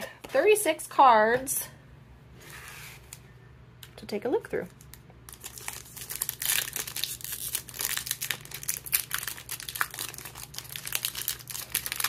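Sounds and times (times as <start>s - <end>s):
foil wrapper crinkling and tearing: 4.8s - 12.0s.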